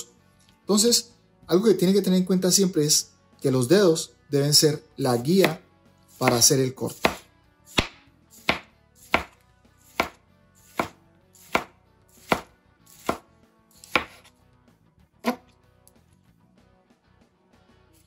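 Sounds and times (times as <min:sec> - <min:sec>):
knife slicing tomato: 0:05.1 - 0:14.4, 0:15.2 - 0:15.5.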